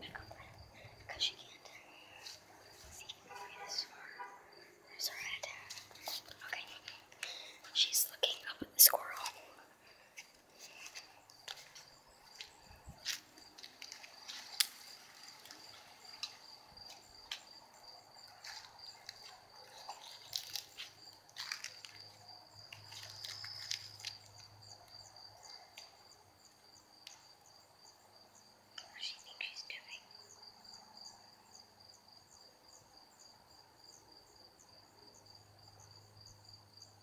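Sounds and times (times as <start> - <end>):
faint clicks and rustles: 5.1 - 26.0.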